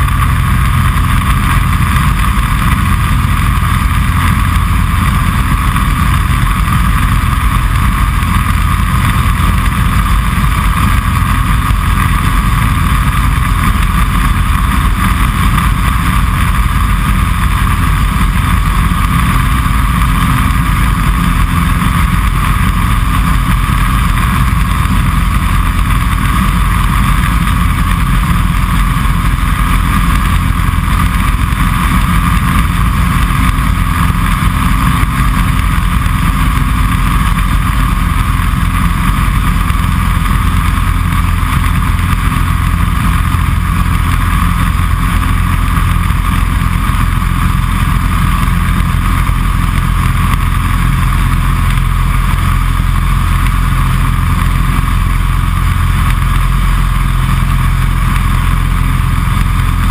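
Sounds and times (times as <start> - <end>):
aircraft engine and propeller: 0.0 - 59.9
wind noise: 0.0 - 59.9.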